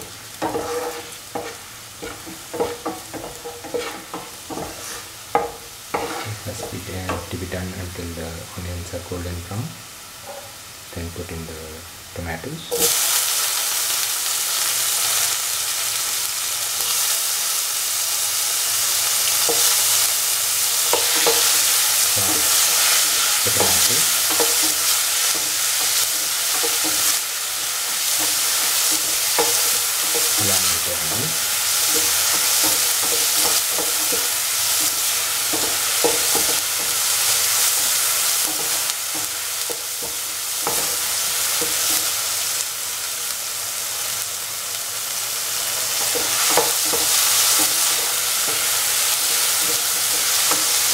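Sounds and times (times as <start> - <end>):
food sizzling in hot oil: 0.0 - 50.9
utensil scraping and knocking pan: 0.4 - 7.3, 20.8 - 37.0.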